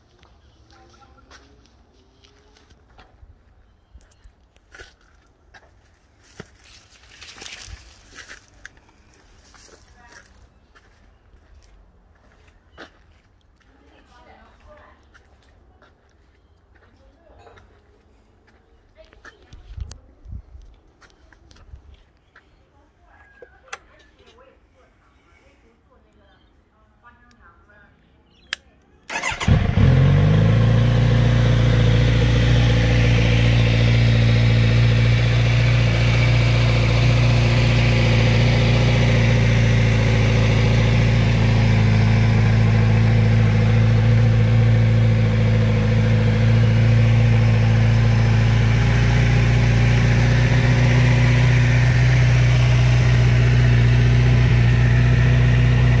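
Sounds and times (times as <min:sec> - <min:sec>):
motorcycle engine starting and idling: 0:29.1 - 0:56.0.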